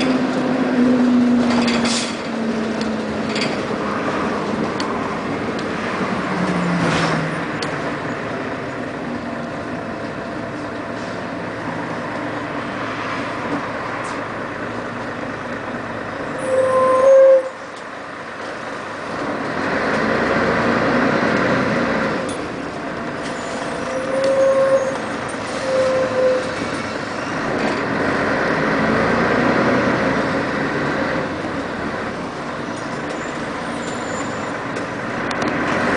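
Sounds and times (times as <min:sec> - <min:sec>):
bus engine running: 0:00.0 - 0:35.9
short loud squeal: 0:16.4 - 0:17.6, 0:23.3 - 0:26.7.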